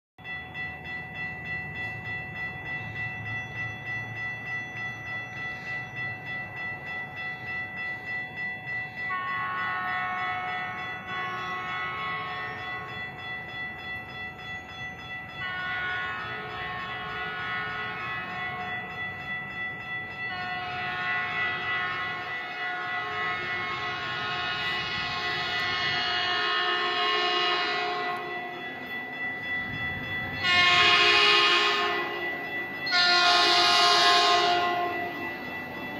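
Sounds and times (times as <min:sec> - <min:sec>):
pulsing ringing bell: 0:00.2 - 0:35.9
train horn blasts: 0:09.1 - 0:12.8, 0:15.5 - 0:18.7, 0:20.3 - 0:28.6, 0:30.4 - 0:32.2, 0:32.9 - 0:35.2.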